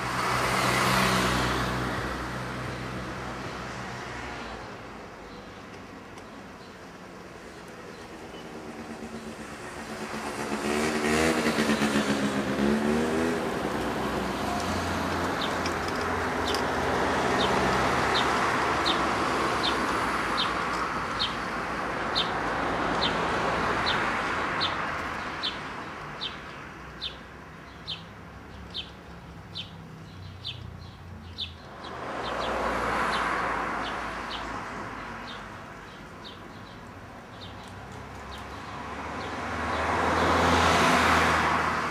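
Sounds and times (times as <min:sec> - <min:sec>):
road traffic passing: 0:00.0 - 0:41.9
bird chirping: 0:23.8 - 0:33.2.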